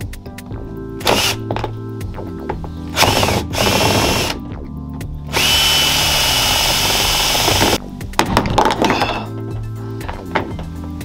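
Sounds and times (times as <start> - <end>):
cordless drill whining: 1.0 - 1.4, 2.9 - 4.4, 5.3 - 7.8.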